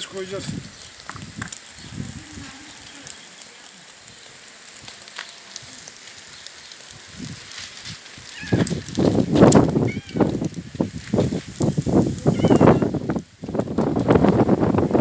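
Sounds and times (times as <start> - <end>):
food sizzling on grill: 0.0 - 15.0
light crackles: 0.0 - 15.0
low voice: 2.1 - 3.8.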